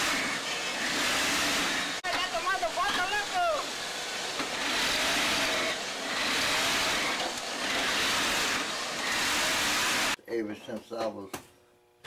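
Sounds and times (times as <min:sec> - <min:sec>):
sewing machine hissing: 0:00.0 - 0:02.0, 0:03.1 - 0:10.2.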